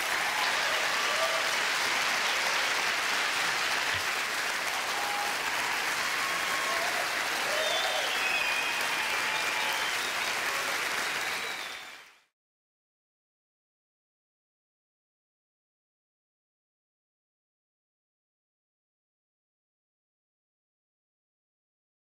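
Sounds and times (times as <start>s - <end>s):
audience applauding: 0.0s - 12.3s.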